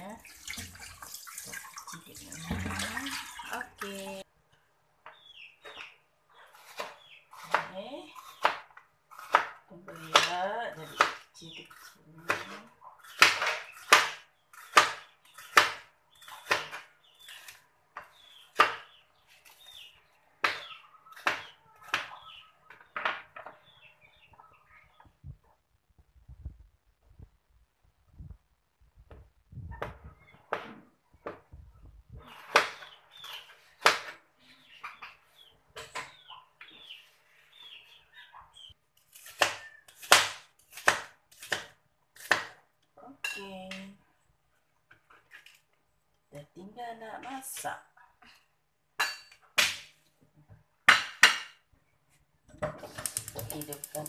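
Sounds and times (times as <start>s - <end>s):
knife chopping on plastic board: 39.1s - 42.6s.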